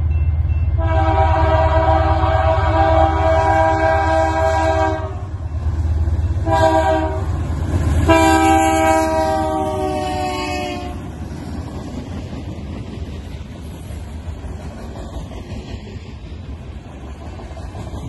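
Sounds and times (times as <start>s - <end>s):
locomotive horn blasts: 0.8s - 5.4s, 6.4s - 7.3s, 8.0s - 11.0s
freight cars rolling on rails: 4.9s - 18.0s.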